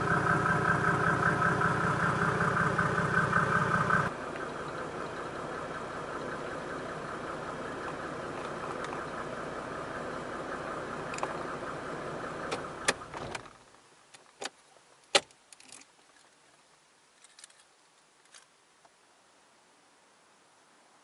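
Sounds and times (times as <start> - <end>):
diesel engine idling: 0.0 - 13.2.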